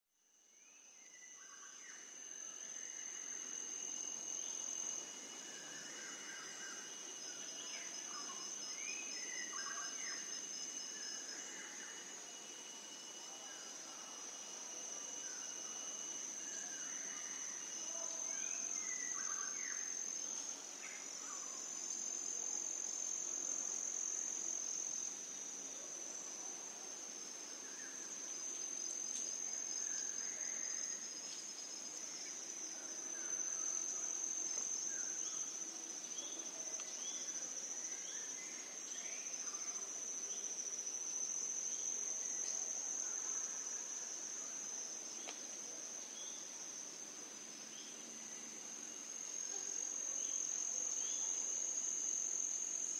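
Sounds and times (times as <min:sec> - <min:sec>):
high-pitched insect chorus trilling: 0:00.2 - 0:52.9.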